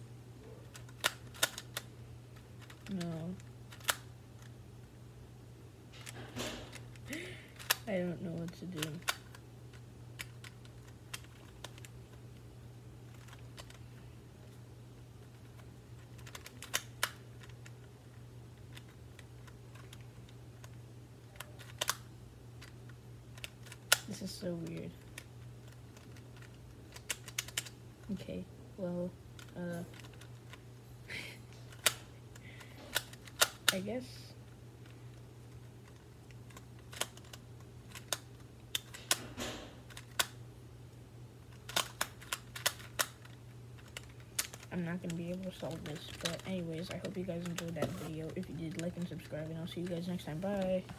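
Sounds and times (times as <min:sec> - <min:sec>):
puzzle cube clicking: 0:00.7 - 0:01.9, 0:02.6 - 0:04.5, 0:06.0 - 0:12.2, 0:13.1 - 0:13.8, 0:15.2 - 0:28.1, 0:29.4 - 0:30.6, 0:31.6 - 0:33.8, 0:34.8 - 0:39.3, 0:39.9 - 0:40.4, 0:41.5 - 0:50.8.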